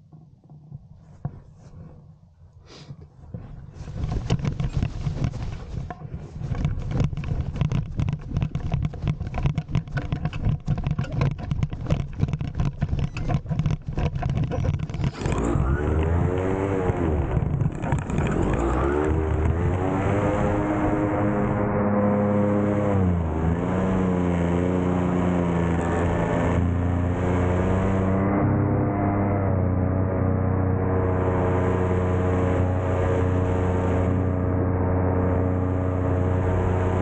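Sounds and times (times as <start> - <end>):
electric motor and propeller whine: 9.4 - 37.0.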